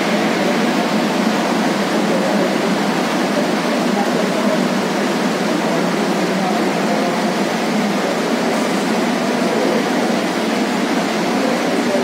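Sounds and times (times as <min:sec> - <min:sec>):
ventilation rushing noise: 0:00.0 - 0:12.0.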